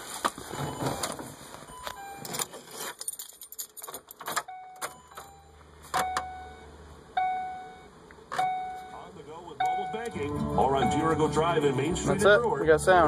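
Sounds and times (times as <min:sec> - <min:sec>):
car warning chime: 0:00.6 - 0:02.4, 0:04.4 - 0:13.0
car keys jangling: 0:01.8 - 0:05.4.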